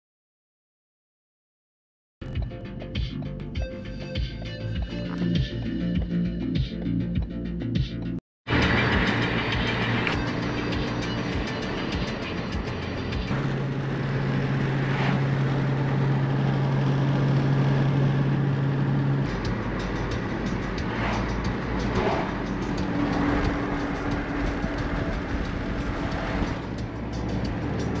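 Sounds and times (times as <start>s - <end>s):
car engine hum: 8.5s - 28.0s
tyre and road noise: 8.5s - 28.0s.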